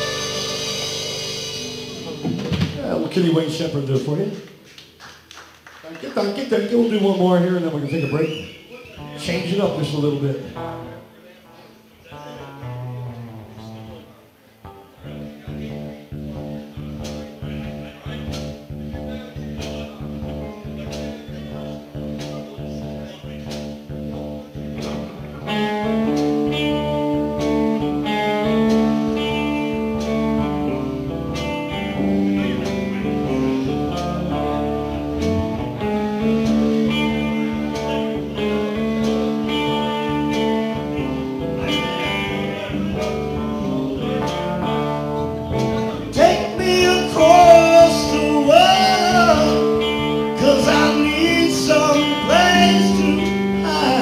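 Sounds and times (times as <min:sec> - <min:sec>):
harmonica lead line: 0:00.0 - 0:02.3
live blues band playing: 0:00.0 - 0:04.9, 0:08.3 - 0:54.0.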